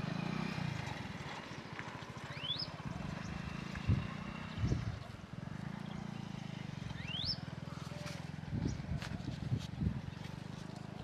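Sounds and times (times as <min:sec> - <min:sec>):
bird whistle: 0:02.3 - 0:02.7, 0:06.9 - 0:07.4.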